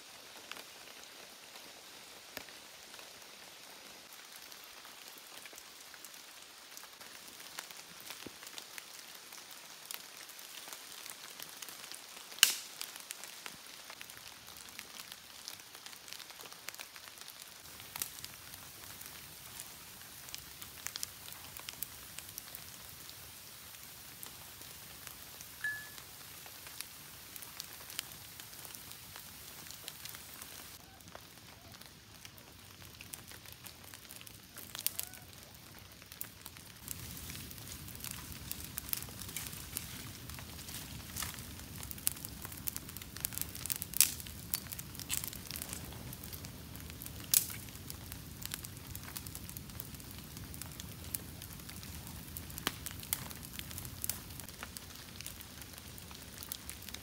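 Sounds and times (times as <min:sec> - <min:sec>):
campfire crackling: 0:00.0 - 0:57.0
sharp pops and snaps: 0:12.3 - 0:13.0, 0:36.2 - 0:46.0
low rush of flames: 0:17.6 - 0:25.6, 0:26.2 - 0:57.0.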